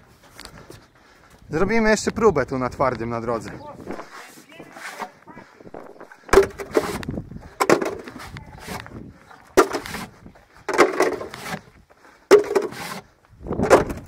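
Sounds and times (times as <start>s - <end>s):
sharp knocks and clatters: 6.3s - 7.0s, 12.3s - 12.8s.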